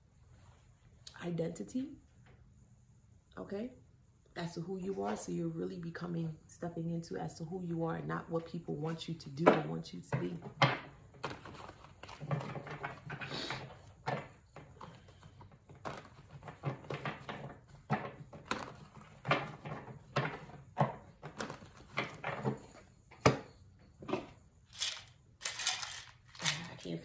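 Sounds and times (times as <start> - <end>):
hands rummaging through objects: 24.7 - 27.0.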